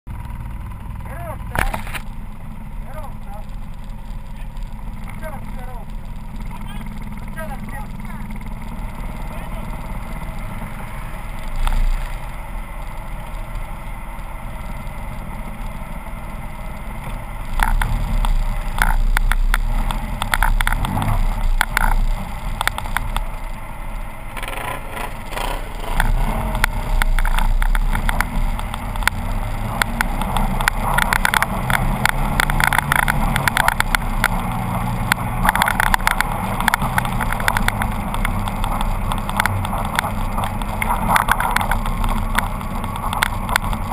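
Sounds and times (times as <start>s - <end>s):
off-road vehicle engine: 0.0s - 43.9s
sharp clacks: 16.7s - 23.5s, 24.3s - 43.9s
rattles and knocks: 25.7s - 43.9s.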